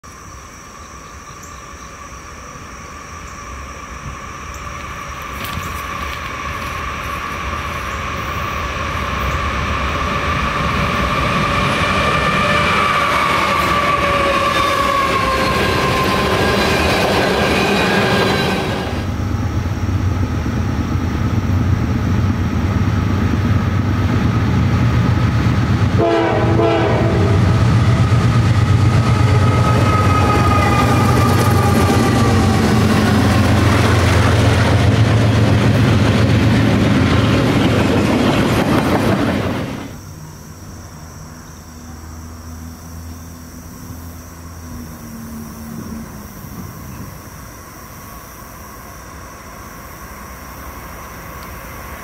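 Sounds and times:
diesel locomotive engine rumble: 0.4s - 52.0s
train cars rolling on rails: 2.9s - 40.0s, 44.1s - 52.0s
locomotive air horn blast: 26.0s - 27.8s.

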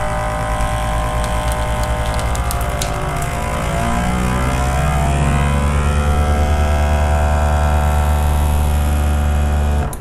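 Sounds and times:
vacuum sealer pump humming: 0.0s - 10.0s
light crackles: 0.4s - 4.5s.

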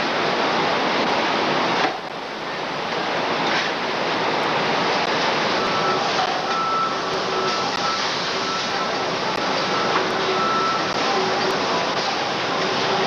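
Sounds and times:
heavy factory machinery din: 0.0s - 13.0s
faint high beeping tone: 5.6s - 11.6s.

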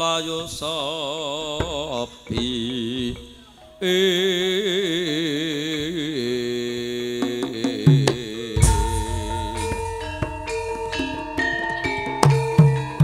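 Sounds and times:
gongs and metallophones ringing: 8.6s - 13.0s.

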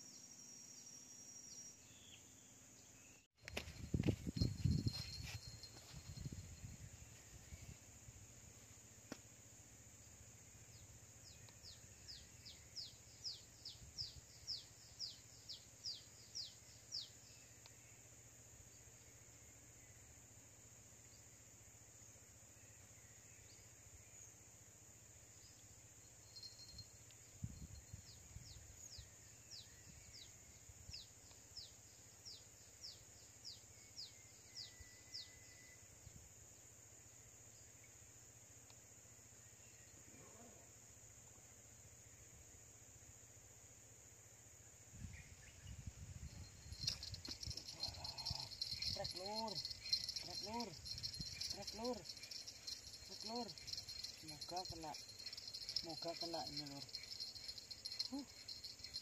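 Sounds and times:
high insect drone: 31.2s - 59.0s.

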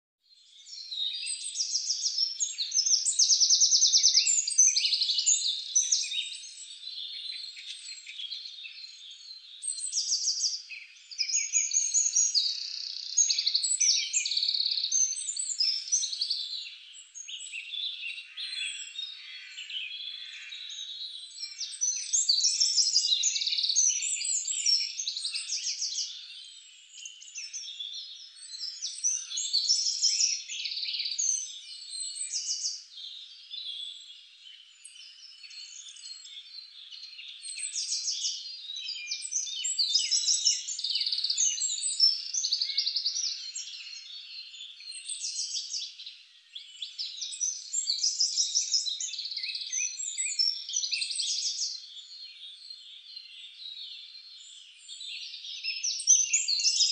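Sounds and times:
birds chirping and whistling: 0.7s - 56.9s.

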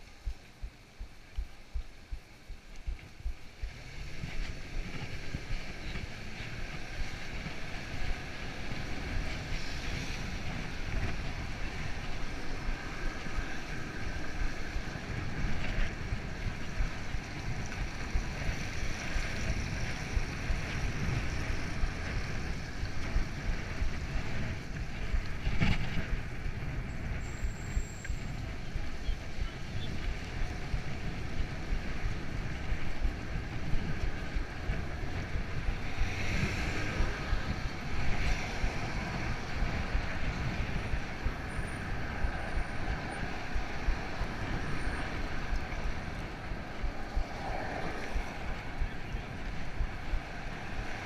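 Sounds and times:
street traffic noise: 0.0s - 51.0s
wind buffeting microphone: 0.0s - 51.0s
cars passing: 30.1s - 51.0s.

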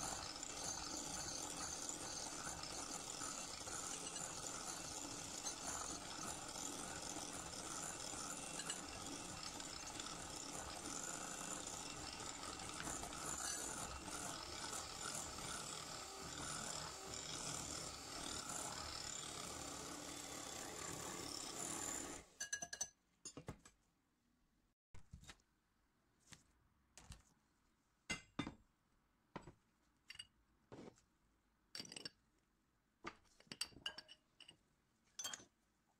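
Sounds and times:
electric hand mixer running: 0.0s - 22.3s.

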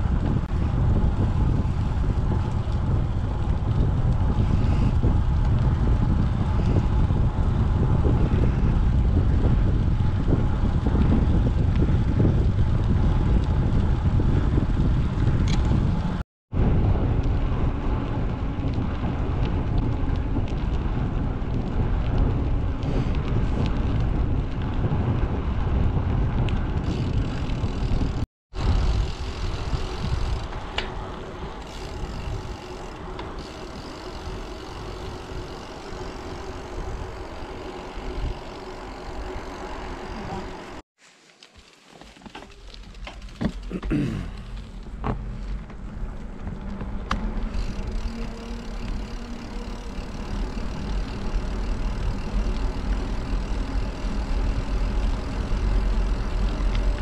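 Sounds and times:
wind rushing over microphone: 0.0s - 40.8s.

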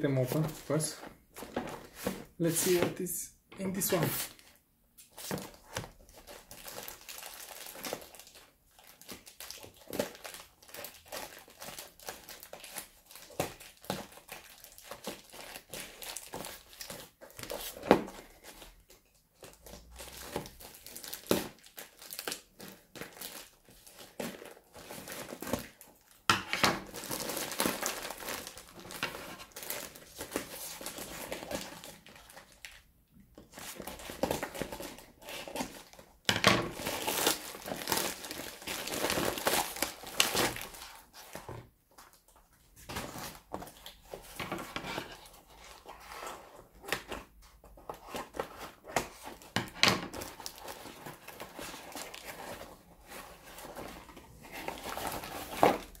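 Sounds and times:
plastic bag crinkling: 26.9s - 32.8s, 36.6s - 41.4s.

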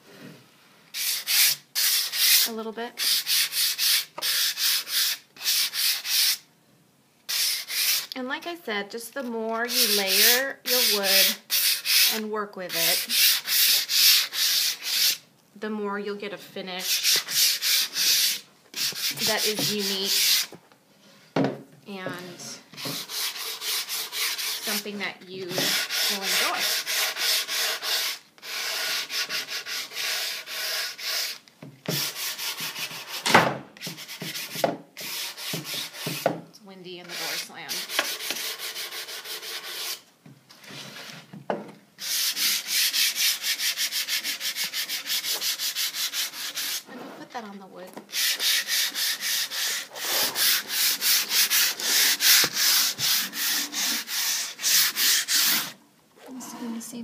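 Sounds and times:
sandpaper rubbing on wood: 1.0s - 6.4s, 7.3s - 8.1s, 9.7s - 15.2s, 16.8s - 20.5s, 22.8s - 24.9s, 25.5s - 33.2s, 33.8s - 36.2s, 37.0s - 40.0s, 42.0s - 46.9s, 48.1s - 55.8s.

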